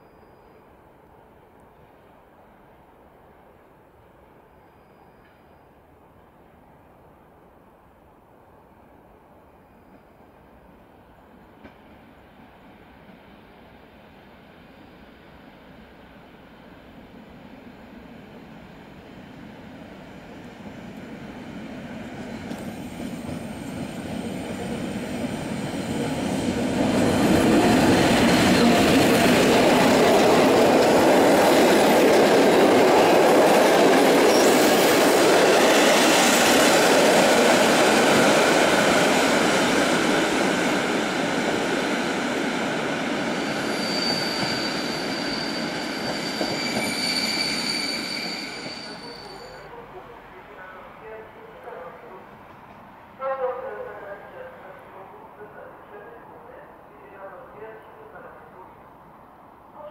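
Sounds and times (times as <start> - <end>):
train wheels rumbling on rail: 11.4 - 12.3, 18.8 - 49.4
high wheel squeal: 34.3 - 34.7, 43.3 - 49.7.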